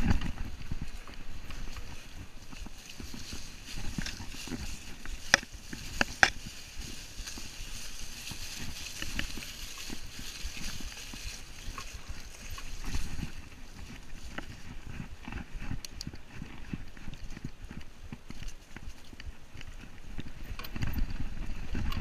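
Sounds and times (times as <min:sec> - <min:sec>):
bike knocks and rattles: 0:00.0 - 0:07.0
tyre hiss over leaves: 0:01.4 - 0:14.6.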